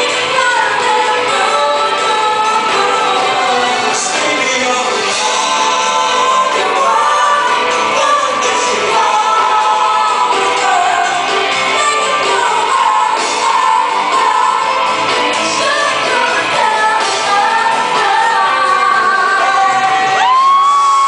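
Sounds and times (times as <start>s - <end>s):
woman singing: 0.0s - 4.2s, 5.2s - 21.0s
live band playing pop song: 0.0s - 21.0s.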